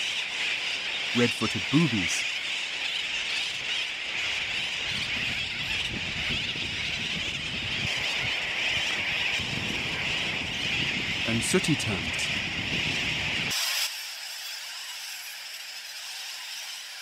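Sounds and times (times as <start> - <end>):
seabird colony calling: 0.0 - 13.5.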